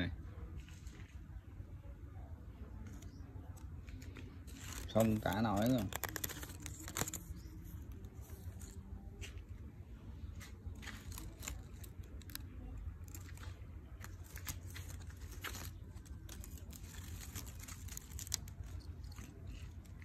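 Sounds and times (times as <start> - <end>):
leaves rustling: 2.8 - 20.0.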